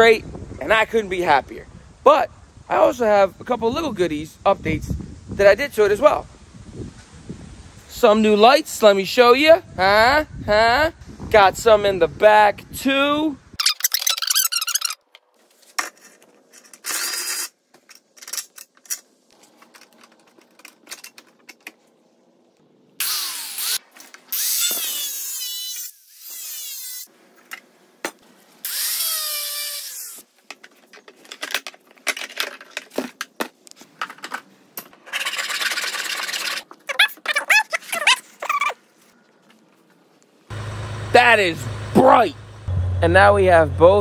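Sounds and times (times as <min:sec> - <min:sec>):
clicks and knocks of tools: 0:17.7 - 0:21.8.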